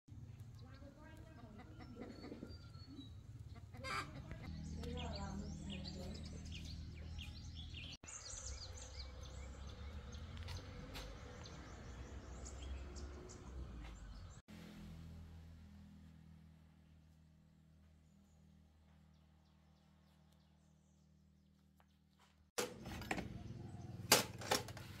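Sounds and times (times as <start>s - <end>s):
small birds chirping: 0.1s - 14.4s
chickens clucking: 0.8s - 4.5s.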